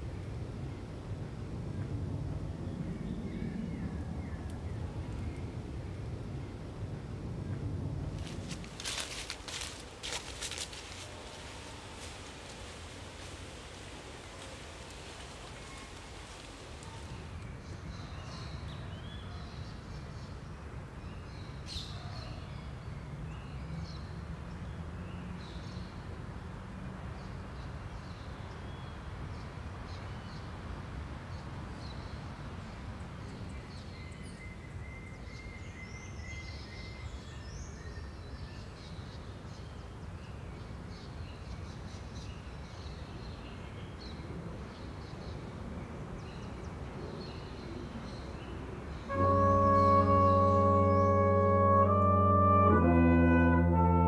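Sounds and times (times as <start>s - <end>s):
steady low rumble: 0.0s - 17.4s
birds chirping: 49.0s - 54.0s.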